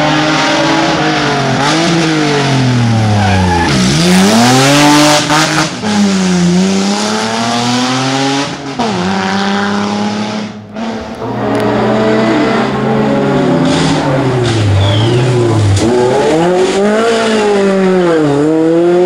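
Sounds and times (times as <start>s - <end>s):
another rally car engine approaching: 0.0s - 19.0s
rally car accelerating with upshifts: 0.0s - 19.0s.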